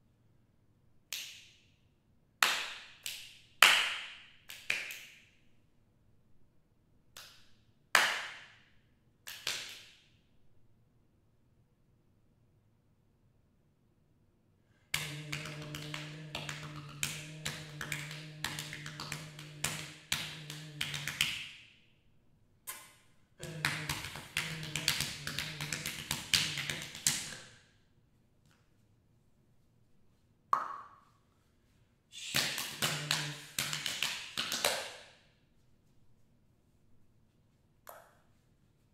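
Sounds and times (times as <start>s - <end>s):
fingers tapping on body: 15.0s - 21.5s, 23.4s - 27.4s, 32.4s - 34.9s.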